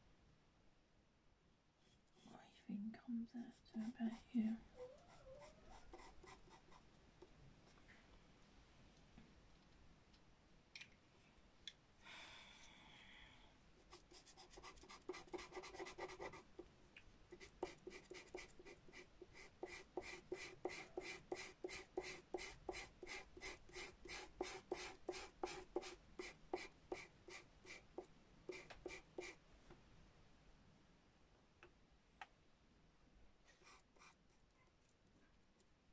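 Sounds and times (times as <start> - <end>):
pencil scratching on paper: 3.4 - 4.3, 5.0 - 6.8, 13.8 - 16.6, 17.4 - 29.4.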